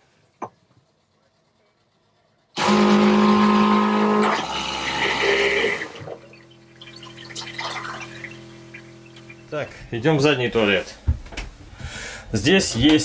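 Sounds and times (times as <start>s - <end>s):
toilet pump motor whining: 2.5s - 10.8s
water rushing: 5.7s - 9.7s.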